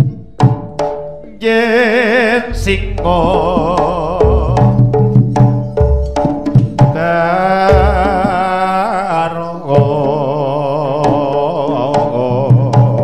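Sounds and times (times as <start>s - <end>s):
drum strokes: 0.0s - 1.4s, 2.5s - 9.1s
long wavering melody: 2.5s - 6.2s
gamelan music: 2.5s - 7.2s.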